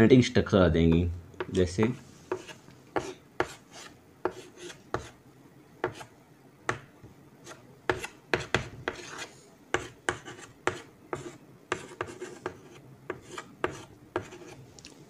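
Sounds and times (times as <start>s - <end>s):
chalk scraping on chalkboard: 1.9s - 5.2s, 7.4s - 14.6s.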